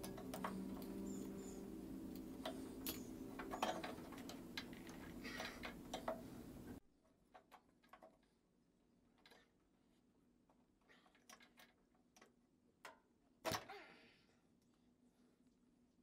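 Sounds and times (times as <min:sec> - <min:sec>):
steady low hum: 0:00.0 - 0:06.8.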